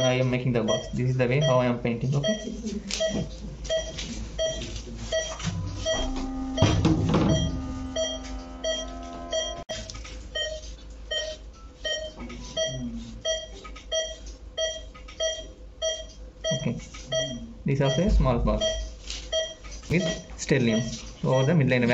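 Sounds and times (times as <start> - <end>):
monitor short beeps: 3.0 - 9.6.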